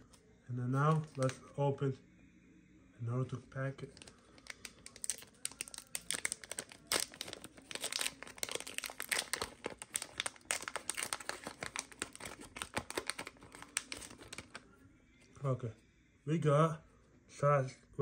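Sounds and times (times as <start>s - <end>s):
foil pack crinkling and tearing: 0.9s - 1.4s, 3.9s - 14.6s.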